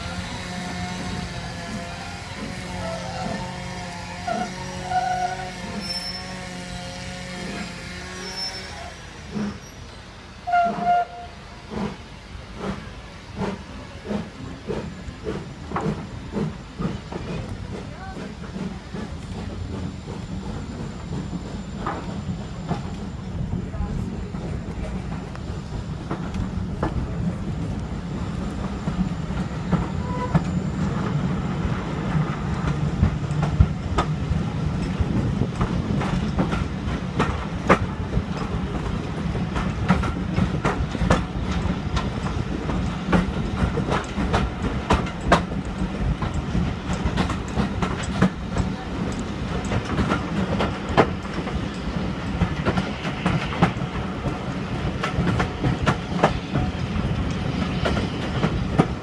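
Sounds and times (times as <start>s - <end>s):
train wheels rumbling: 0.0s - 59.0s
wheels clicking over rail joints: 32.2s - 59.0s.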